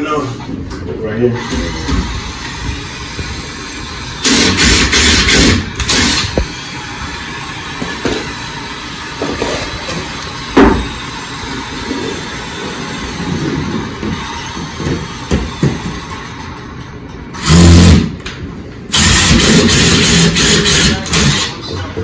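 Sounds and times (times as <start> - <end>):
steady background noise: 0.0 - 22.0
cordless drill driving screw: 18.9 - 21.5.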